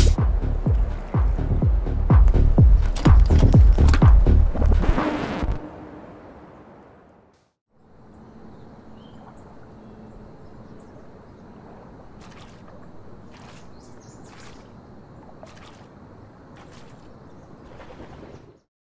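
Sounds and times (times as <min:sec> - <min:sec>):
soft water splashes: 0:09.0 - 0:10.0, 0:10.8 - 0:18.6.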